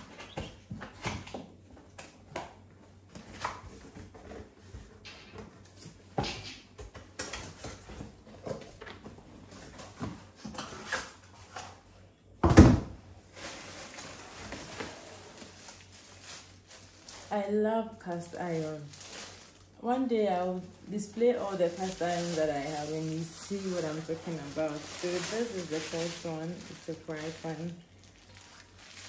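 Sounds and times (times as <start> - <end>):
plastic bag rustling: 13.2 - 29.0.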